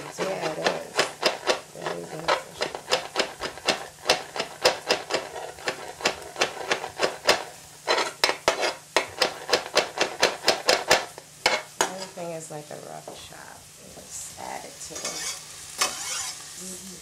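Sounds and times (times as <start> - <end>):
knife chopping on cutting board: 0.2 - 11.6.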